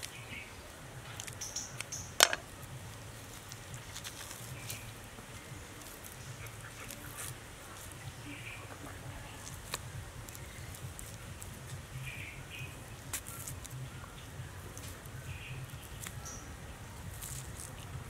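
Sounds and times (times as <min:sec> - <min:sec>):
snake skin being peeled: 0:00.0 - 0:18.0
high bird chirps: 0:01.2 - 0:02.2.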